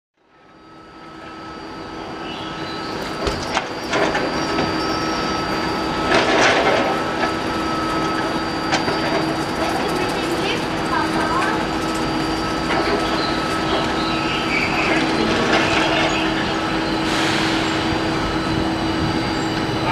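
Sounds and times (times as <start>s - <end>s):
train equipment humming: 0.2s - 19.9s.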